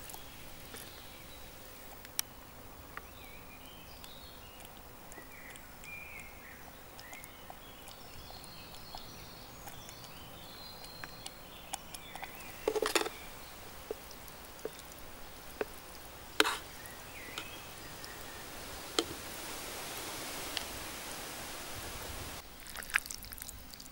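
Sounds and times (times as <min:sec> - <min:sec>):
small birds chirping: 0:00.0 - 0:22.4
mess tin clattering: 0:12.6 - 0:13.2.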